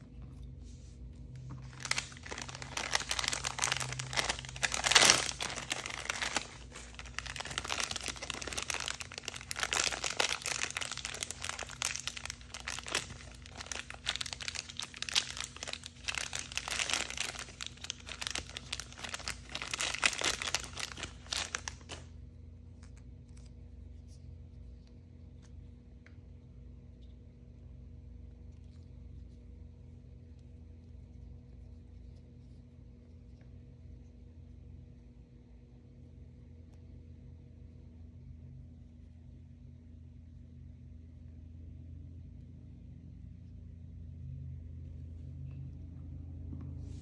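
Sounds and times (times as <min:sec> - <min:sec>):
plastic wrapper crinkling and tearing: 0:01.5 - 0:22.1.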